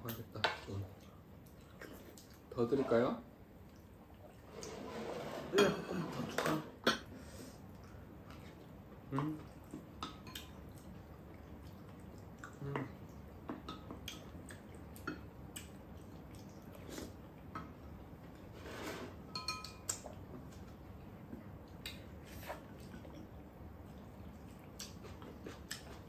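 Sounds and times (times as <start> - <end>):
utensils clinking on ceramic bowls: 19.3 - 20.0.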